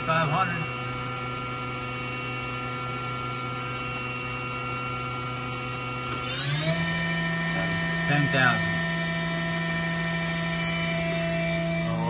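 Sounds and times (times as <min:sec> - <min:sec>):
machine spindle whining: 0:00.0 - 0:12.0.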